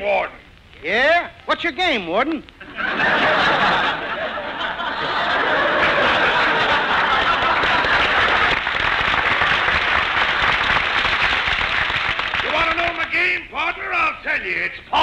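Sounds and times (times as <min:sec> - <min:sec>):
audience laughing: 0:02.6 - 0:10.8
audience applauding: 0:03.6 - 0:13.2.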